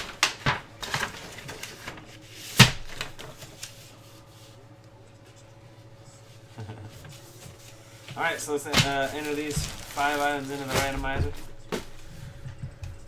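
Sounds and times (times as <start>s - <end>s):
paper envelope rustling: 0.0s - 4.6s, 7.1s - 12.3s
faint room hum: 0.0s - 13.0s.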